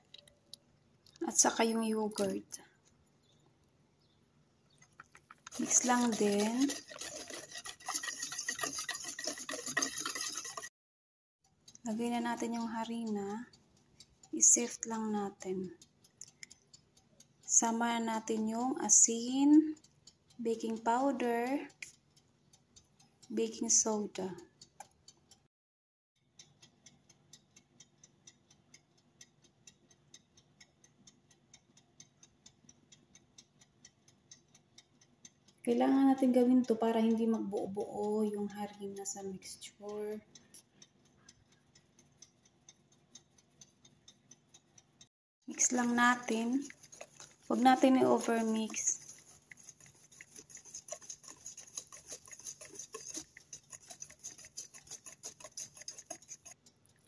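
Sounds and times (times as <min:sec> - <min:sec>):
metal sieve tapped by hand: 0:05.3 - 0:10.7, 0:45.5 - 0:56.6
utensil scraping metal bowl: 0:05.3 - 0:10.7, 0:45.5 - 0:56.6.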